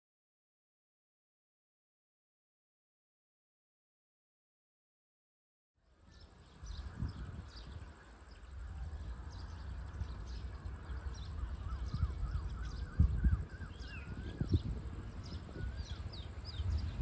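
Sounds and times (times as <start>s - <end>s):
birds chirping and calling: 6.1s - 17.0s.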